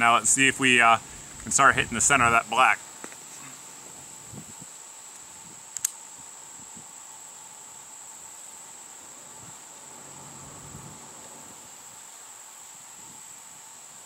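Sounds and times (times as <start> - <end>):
high-pitched insect drone: 2.4 - 14.0
sharp click: 5.8 - 6.0.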